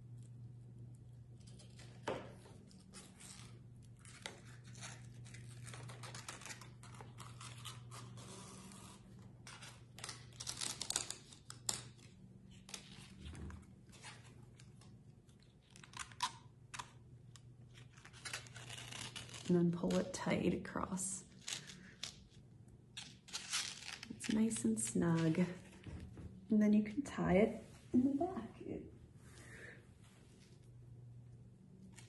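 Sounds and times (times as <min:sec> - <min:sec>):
low steady hum: 0:00.0 - 0:32.0
rustling and scraping of card: 0:01.3 - 0:20.1, 0:23.0 - 0:25.9.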